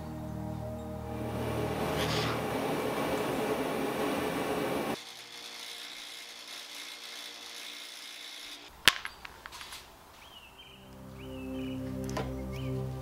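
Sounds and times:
bench buffer humming: 0:00.0 - 0:07.6.

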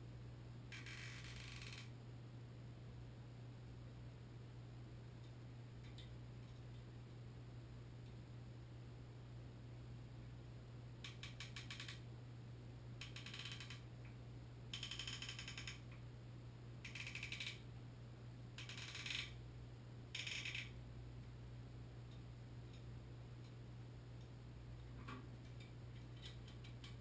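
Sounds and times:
faint low hum: 0:00.0 - 0:27.0
rapid clicking bursts: 0:11.1 - 0:12.0, 0:13.0 - 0:13.8, 0:14.7 - 0:15.9, 0:16.9 - 0:17.6.

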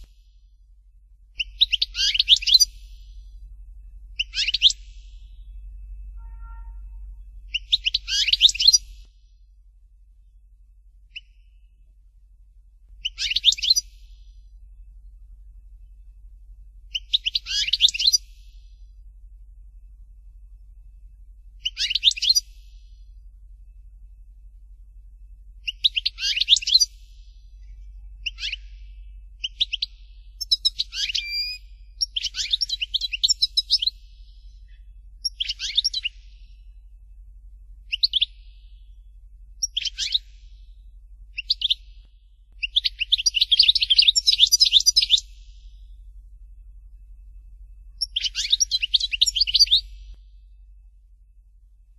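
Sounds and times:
goldfinch twittering song: 0:01.4 - 0:03.3, 0:04.1 - 0:05.6, 0:07.5 - 0:09.1, 0:13.0 - 0:14.3, 0:16.9 - 0:18.6, 0:21.6 - 0:22.9, 0:25.6 - 0:36.7, 0:37.8 - 0:39.0, 0:39.6 - 0:40.7, 0:41.3 - 0:45.8, 0:48.0 - 0:50.3.

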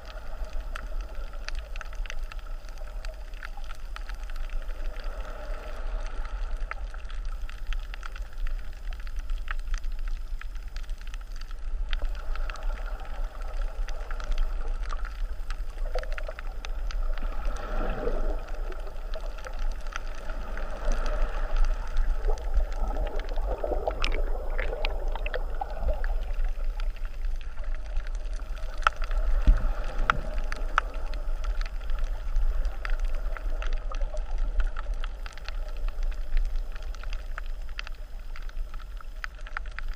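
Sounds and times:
bubbles bursting: 0:20.8 - 0:27.1.

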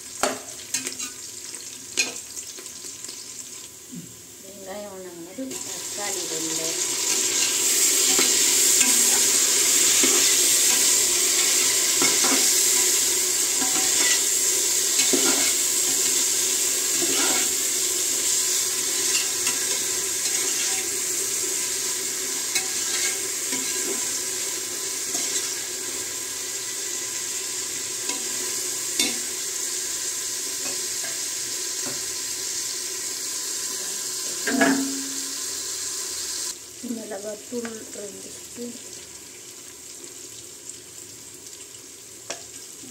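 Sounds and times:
vegetables sizzling in hot oil: 0:00.0 - 0:42.9
metal ladle scraping a pot: 0:19.0 - 0:21.0, 0:22.6 - 0:24.0.

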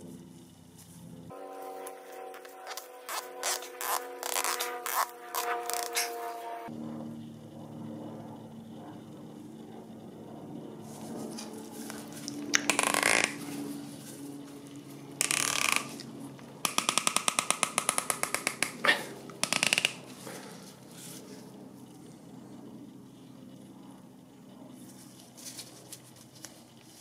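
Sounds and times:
plastic cap scraping: 0:02.4 - 0:06.2, 0:11.4 - 0:13.6, 0:16.7 - 0:20.4
sharp clicks: 0:16.7 - 0:20.1.

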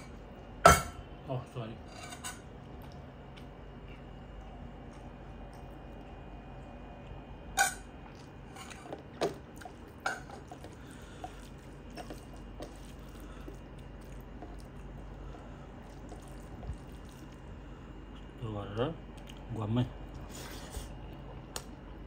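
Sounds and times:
hand mixing wet rice: 0:08.1 - 0:18.7.

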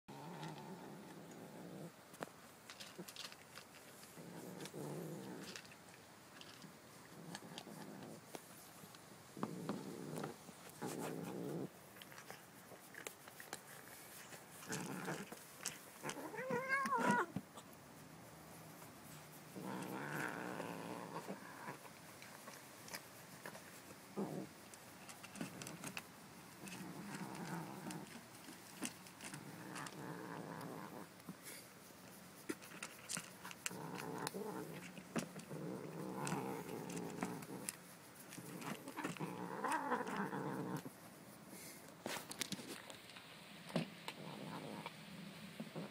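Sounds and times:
kitten growling: 0:00.1 - 0:02.0, 0:04.2 - 0:05.7, 0:09.4 - 0:11.7, 0:14.5 - 0:17.4, 0:19.5 - 0:21.9, 0:24.2 - 0:24.6, 0:26.6 - 0:31.1, 0:32.7 - 0:40.9, 0:44.1 - 0:45.0.

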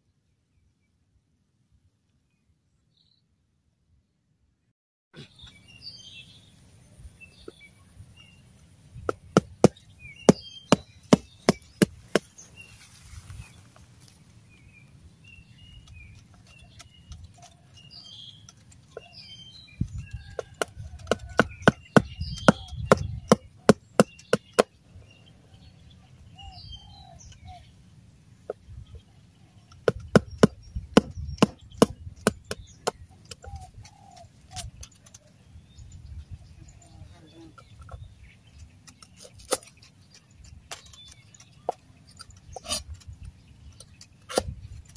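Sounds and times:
small birds chirping: 0:05.2 - 0:44.9
cleaver chopping on wooden block: 0:09.1 - 0:12.3, 0:20.3 - 0:24.7, 0:29.8 - 0:33.6, 0:44.3 - 0:44.6.

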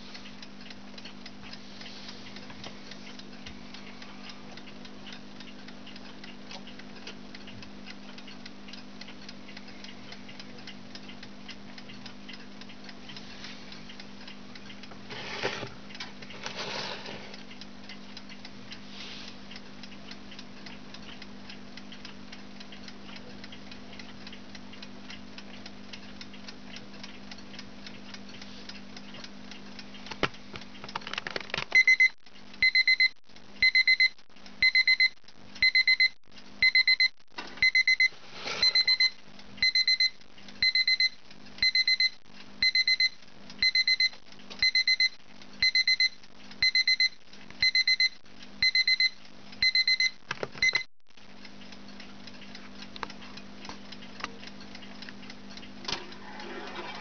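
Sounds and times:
alarm clock ticking: 0:00.2 - 0:15.2, 0:19.5 - 0:30.8, 0:31.7 - 0:56.8
high pulsed alarm beeps: 0:31.8 - 0:50.9.

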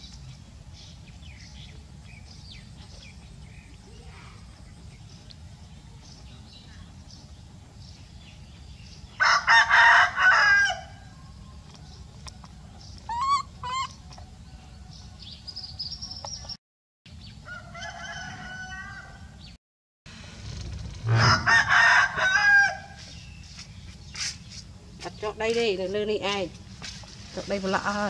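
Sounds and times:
rooster crowing: 0:09.2 - 0:11.3, 0:17.4 - 0:19.4, 0:21.1 - 0:23.0
fainter higher bird calls: 0:12.9 - 0:14.6.

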